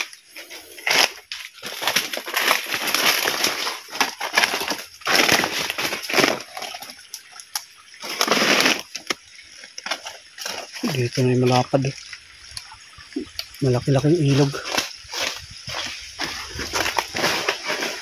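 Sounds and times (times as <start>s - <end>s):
footsteps crunching on dry leaves: 0.4s - 6.6s, 14.3s - 18.0s
brushing through undergrowth: 14.3s - 18.0s.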